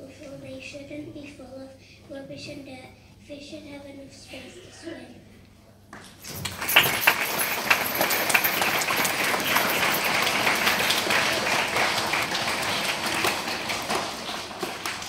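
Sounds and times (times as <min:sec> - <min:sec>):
children applauding: 0:06.2 - 0:15.0.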